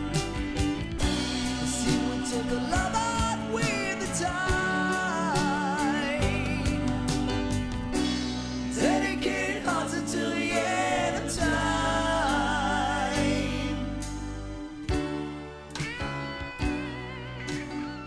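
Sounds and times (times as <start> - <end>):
slow love song music: 0.0 - 18.0
person singing with vibrato: 1.3 - 7.5, 8.7 - 14.8.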